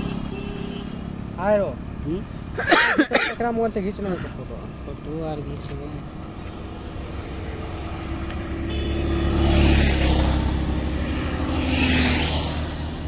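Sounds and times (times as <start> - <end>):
motorcycle passing: 0.0 - 2.2, 4.5 - 13.0
vehicle approaching: 3.8 - 13.0.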